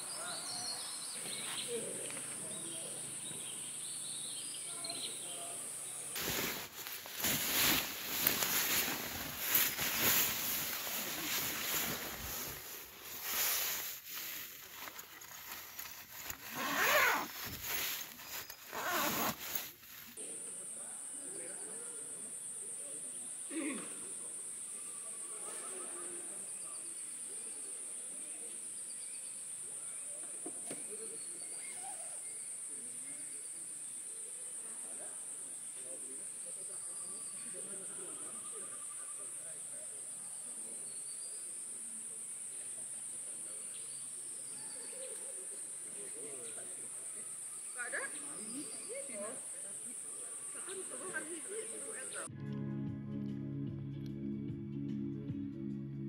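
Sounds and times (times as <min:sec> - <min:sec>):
tent fabric rustling: 0:06.2 - 0:20.2
zipper being worked: 0:14.9 - 0:19.9.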